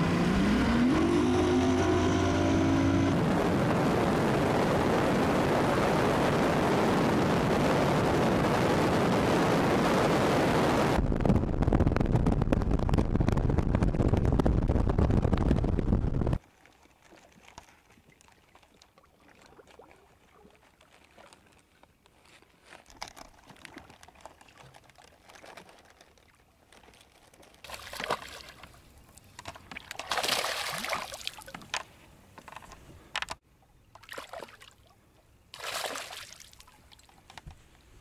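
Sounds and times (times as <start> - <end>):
fish splashing at water surface: 29.7 - 31.6, 35.6 - 37.2.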